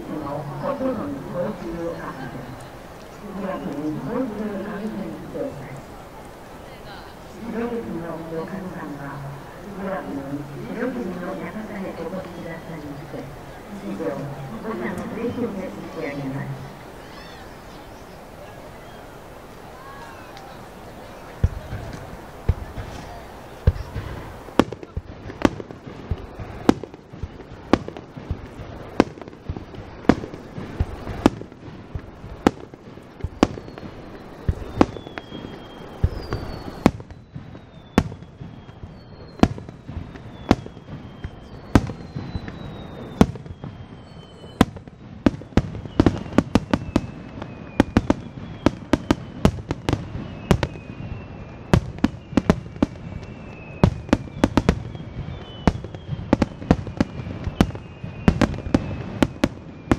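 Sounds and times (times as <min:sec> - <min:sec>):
falling firework whistles: 0:10.5 - 0:59.9
firework shells bursting: 0:21.3 - 0:59.9.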